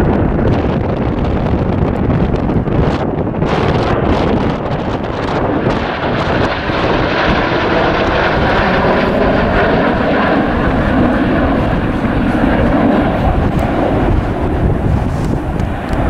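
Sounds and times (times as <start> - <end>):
jets flying past: 0.0 - 16.0.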